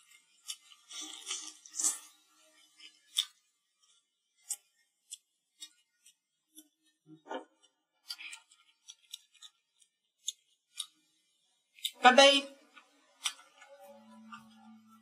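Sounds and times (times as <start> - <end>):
person chewing meat: 0.0 - 6.8, 8.0 - 11.0.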